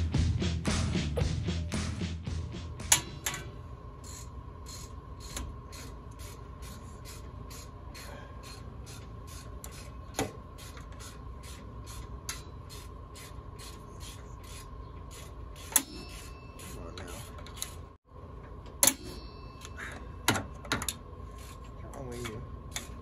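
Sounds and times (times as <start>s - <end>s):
metal tool scraping: 4.0s - 18.0s.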